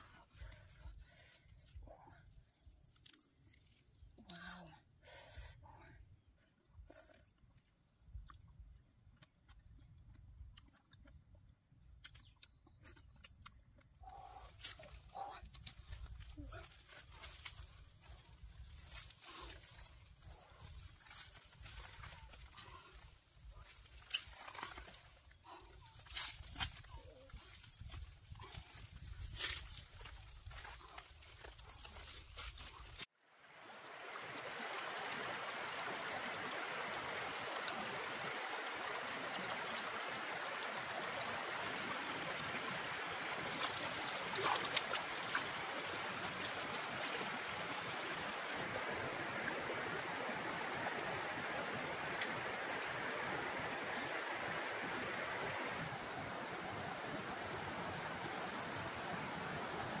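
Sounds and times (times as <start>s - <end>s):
stream rushing over rocks: 33.2s - 60.0s.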